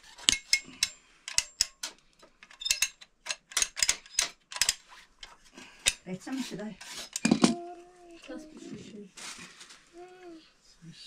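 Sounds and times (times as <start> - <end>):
sharp clicks and light clinks: 0.3 - 6.0.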